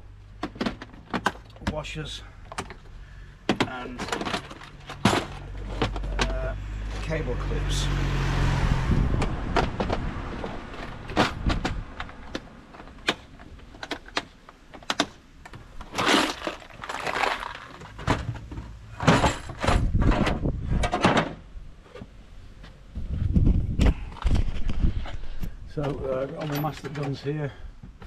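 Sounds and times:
items clicking and knocking in racking: 0.3 - 6.6, 9.2 - 22.1, 25.8 - 27.3.

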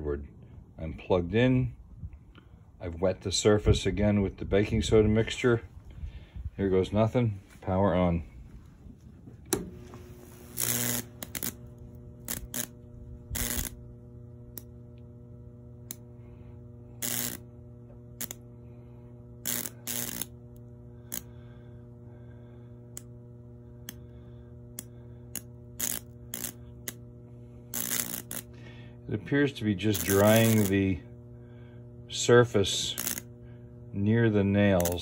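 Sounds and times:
transformer buzzing: 4.8 - 35.0
electric snaps and crackles: 9.8 - 13.9, 16.9 - 18.5, 19.4 - 21.3, 24.8 - 27.0, 27.7 - 28.5, 29.7 - 31.0, 32.3 - 33.3, 34.6 - 35.0.

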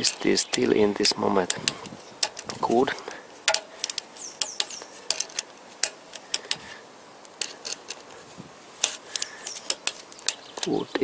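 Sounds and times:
torque wrench clicking: 1.4 - 2.5, 3.5 - 8.1
metal taps: 1.4 - 6.6, 8.8 - 11.0.

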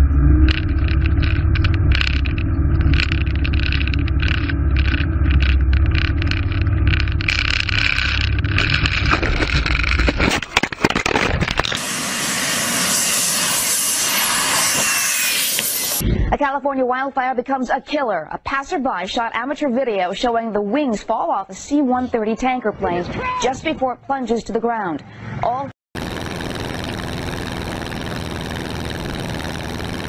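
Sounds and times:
propeller plane engine drone: 0.0 - 10.0, 11.6 - 16.0, 26.0 - 30.0
rushing hiss of landing plane: 11.8 - 16.0.

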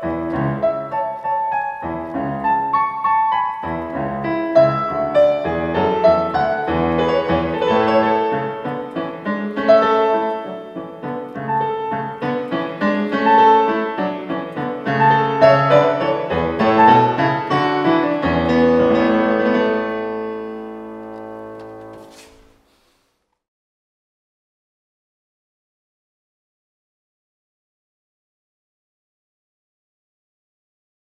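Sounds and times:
solo piano music: 0.0 - 22.2.

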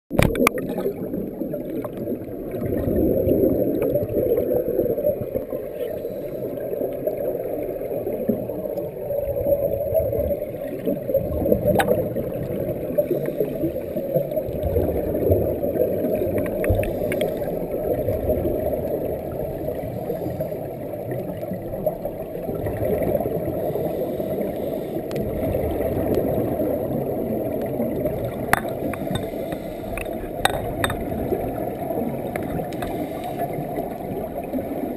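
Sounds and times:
muffled underwater rumble: 0.1 - 34.9
air bubbles rising: 25.1 - 34.9.

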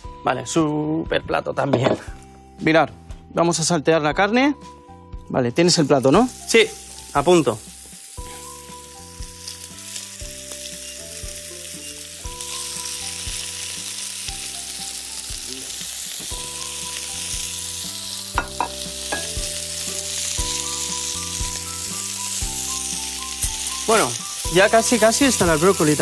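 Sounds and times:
meat sizzling in oil: 5.7 - 26.0.

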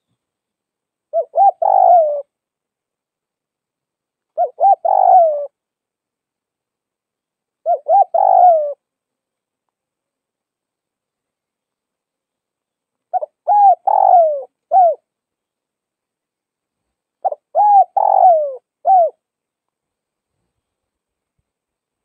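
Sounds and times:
dove cooing: 1.1 - 2.4, 4.3 - 5.6, 7.6 - 8.8, 13.1 - 15.1, 17.2 - 19.2.

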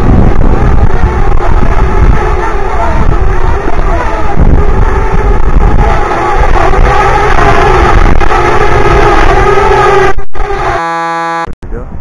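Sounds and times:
wind rumble on microphone: 0.0 - 10.8, 11.6 - 12.0
drone propellers buzzing: 0.0 - 11.5.

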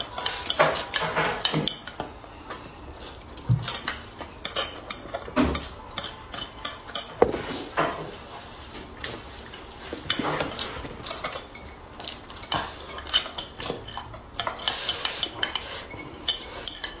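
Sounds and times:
chopsticks scraping bowl: 0.0 - 2.1, 9.5 - 17.0.

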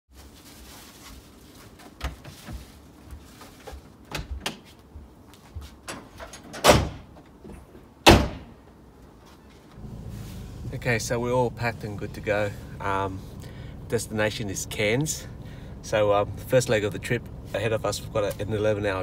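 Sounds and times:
tailgate and door slams: 5.9 - 7.2, 8.0 - 8.6.

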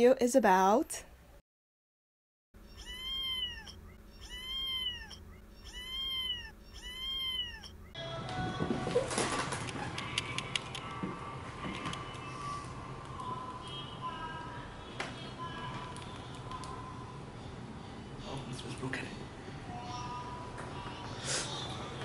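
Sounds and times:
cat meowing: 2.6 - 7.9.

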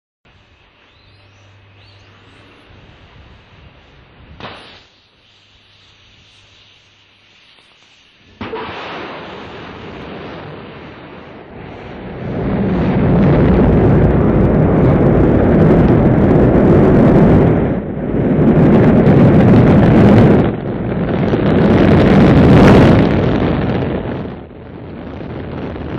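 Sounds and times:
rocket engines roaring: 7.6 - 25.9.

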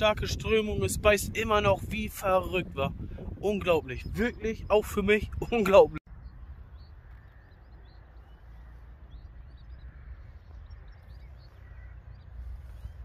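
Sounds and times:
wind rumble on microphone: 0.0 - 13.0
small birds chirping: 3.4 - 13.0.

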